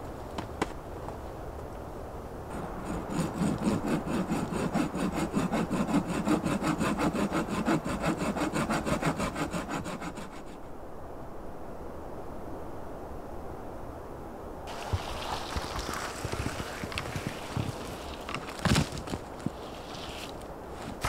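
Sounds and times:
wood being sawn by hand: 2.5s - 10.6s, 14.7s - 21.0s.

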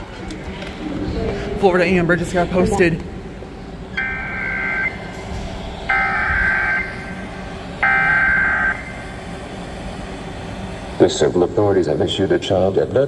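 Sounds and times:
buzzy digital data tones: 3.9s - 12.3s.

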